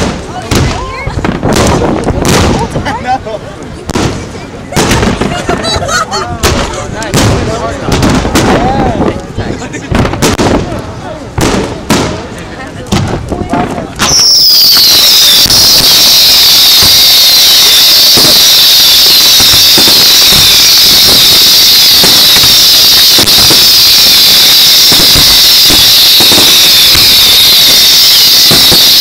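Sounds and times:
fireworks bangs and crackles: 0:00.0 - 0:29.0
fireworks whistling hiss: 0:14.0 - 0:29.0.

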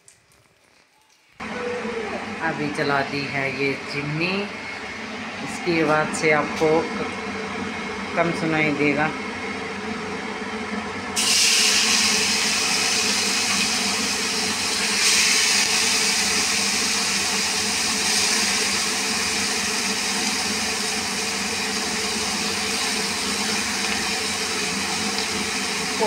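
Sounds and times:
range hood fan humming: 0:01.3 - 0:26.0
vegetables sizzling in hot oil: 0:11.2 - 0:26.0.

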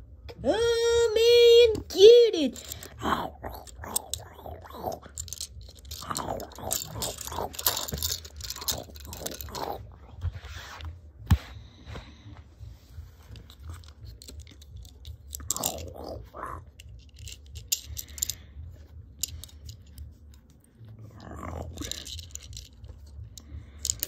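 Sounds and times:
plastic toy bricks rustling: 0:02.5 - 0:10.6, 0:13.1 - 0:24.0.

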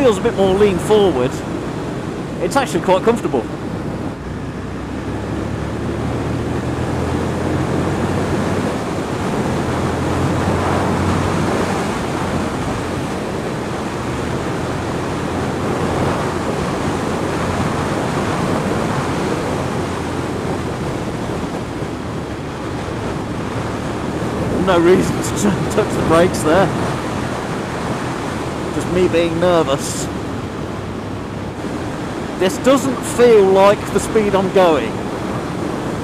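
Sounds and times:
motorcycle engine drone: 0:00.0 - 0:36.0
wind rush on helmet: 0:00.0 - 0:36.0.

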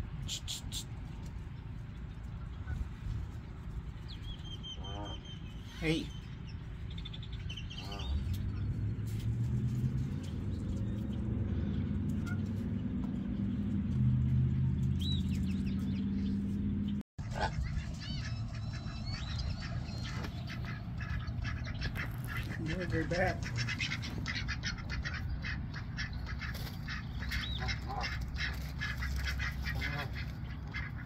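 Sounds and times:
steady low rumble: 0:00.0 - 0:31.0
songbirds chirping: 0:00.4 - 0:31.0
ducks and geese calling: 0:02.2 - 0:06.1, 0:07.4 - 0:08.8, 0:11.0 - 0:13.6, 0:17.2 - 0:31.0.

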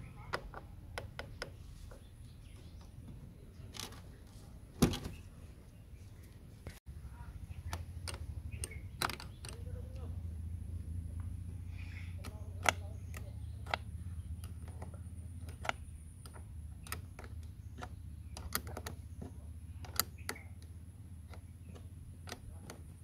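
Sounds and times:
steady low hum: 0:00.0 - 0:23.0
spanner clicking on nut: 0:07.6 - 0:10.0, 0:12.1 - 0:23.0.

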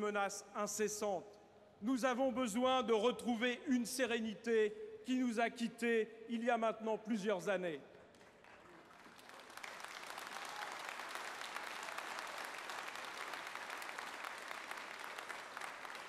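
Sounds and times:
large crowd applauding: 0:08.1 - 0:16.0.

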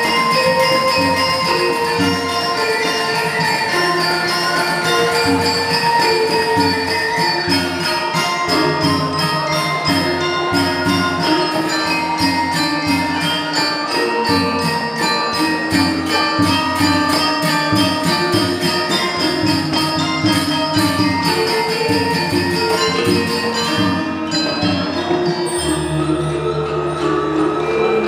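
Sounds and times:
fast cymbal clashes: 0:00.0 - 0:28.0
metallophones ringing melody: 0:00.0 - 0:28.0.

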